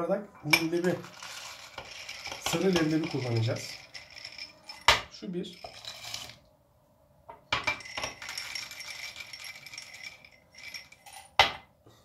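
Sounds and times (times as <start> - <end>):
chickpeas rattling against glass: 0.8 - 6.4, 7.6 - 11.4.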